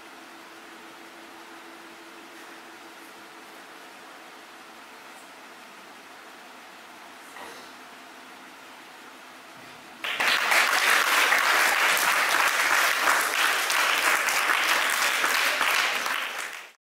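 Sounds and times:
faint room noise: 0.0s - 16.8s
audience applauding: 10.0s - 16.8s.

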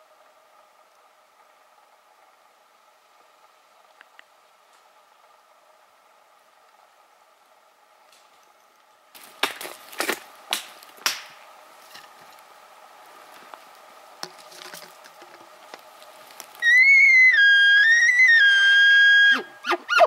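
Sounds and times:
sharp snaps: 10.5s - 11.4s
elk bugling: 15.6s - 20.0s.

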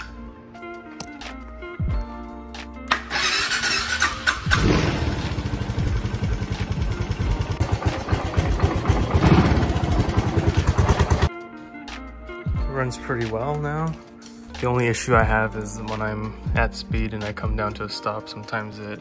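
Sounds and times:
electric starter cranking: 2.9s - 11.3s
motorcycle engine running: 4.5s - 11.3s.

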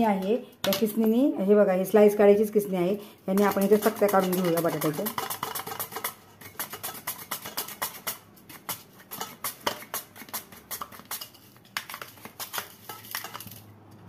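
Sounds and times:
slices dropping onto steel plate: 3.4s - 13.7s.

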